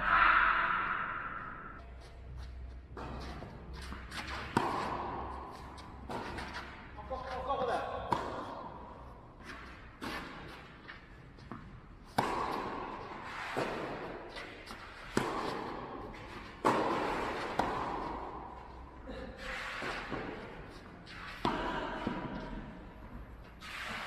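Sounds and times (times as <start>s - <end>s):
tennis ball bouncing: 2.7s - 7.0s, 7.6s - 19.0s, 19.8s - 24.0s
tennis racket striking ball: 2.9s - 6.9s, 8.0s - 18.8s.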